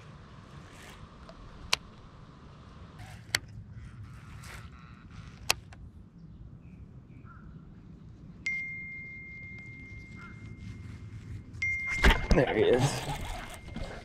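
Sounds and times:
high-pitched steady tone: 8.5s - 12.3s.

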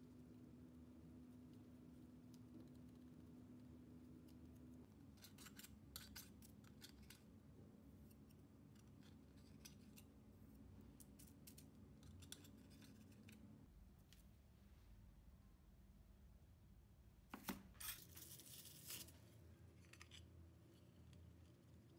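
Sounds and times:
knife scraping tart tin: 5.2s - 7.2s.

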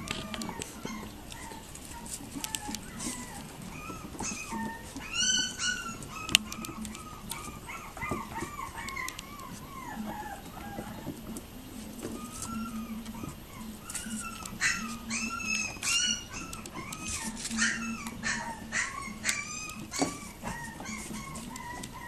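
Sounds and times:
puppy yelp: 0.0s - 11.1s, 12.0s - 22.0s
puppies yipping and whimpering: 0.0s - 22.0s.

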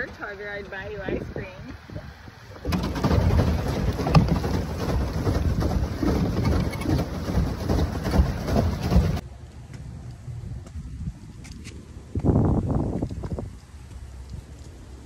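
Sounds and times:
water splashing and churning: 0.0s - 9.2s.

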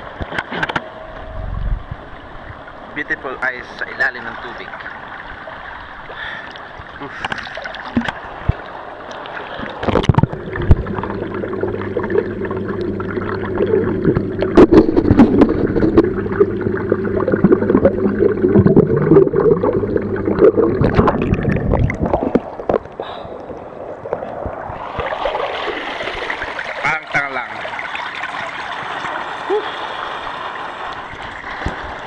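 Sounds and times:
bubbling: 6.1s - 32.0s
clicks underwater: 6.4s - 25.3s
microphone splashing into water: 9.5s - 23.4s
muffled underwater hum: 9.8s - 24.8s.

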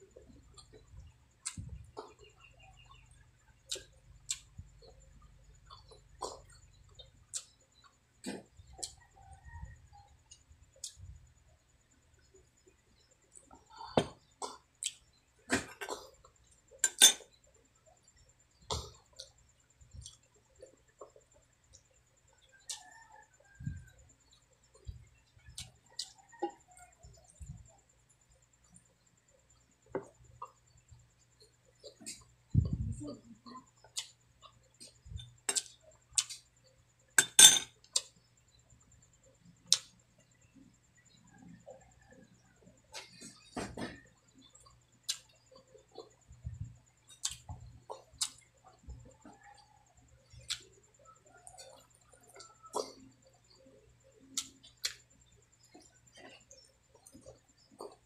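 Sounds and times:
metal spoon clinking on dishes: 16.8s - 17.3s, 37.2s - 37.8s.

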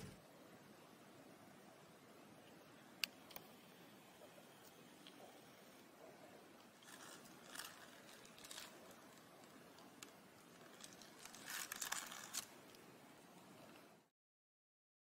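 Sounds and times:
paper wrapper crinkling: 6.7s - 12.8s.

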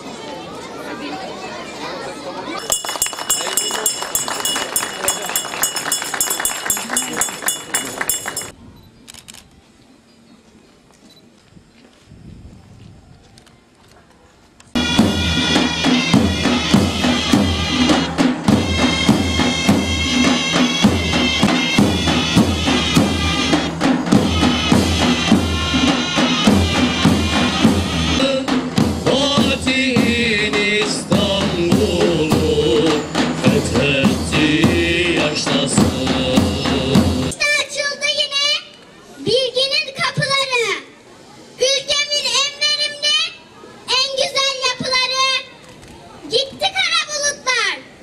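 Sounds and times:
military band playing: 2.6s - 8.5s, 14.8s - 37.4s
bass drum beats: 14.8s - 37.3s.

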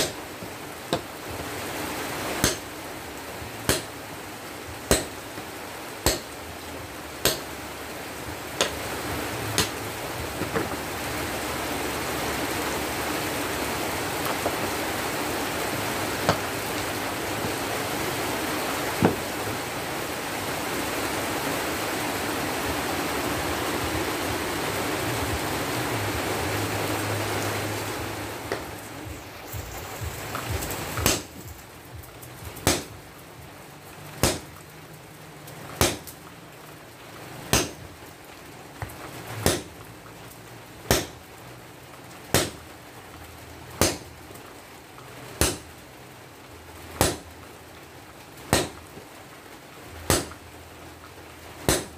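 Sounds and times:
sledgehammer blows on hot steel: 0.0s - 0.3s, 2.4s - 2.7s, 3.7s - 4.0s, 4.9s - 5.2s, 6.0s - 6.4s, 29.6s - 31.5s, 32.6s - 32.9s, 34.2s - 34.5s, 35.8s - 36.1s, 47.0s - 47.2s, 51.7s - 51.9s.

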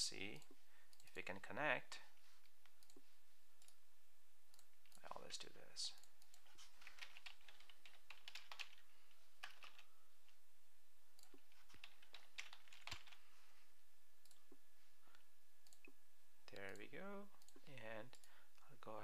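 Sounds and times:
keyboard typing: 6.0s - 9.9s, 11.2s - 13.2s.

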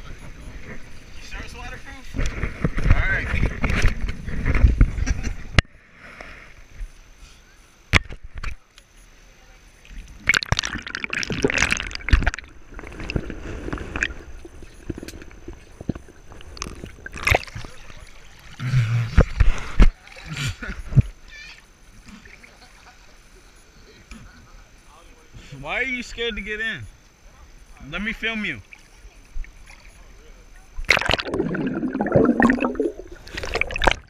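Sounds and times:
water splashing: 10.1s - 19.4s, 30.8s - 34.0s
muffled underwater gurgling: 30.4s - 34.0s.

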